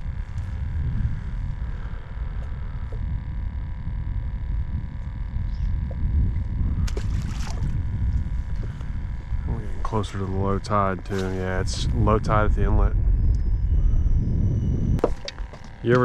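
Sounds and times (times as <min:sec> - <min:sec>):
steady low rumble: 0:00.0 - 0:16.0
water lapping against a hull: 0:05.9 - 0:10.1.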